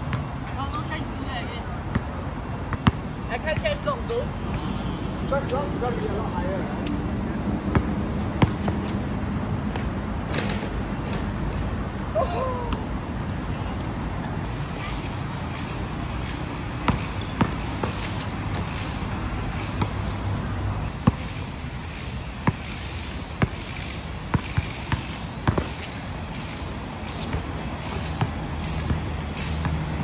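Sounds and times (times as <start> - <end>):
basketball bouncing on hard court: 7.7 - 9.0, 16.8 - 18.9, 20.9 - 21.4, 22.4 - 29.9
pulsing high-pitched buzz: 14.5 - 20.1, 20.8 - 30.0.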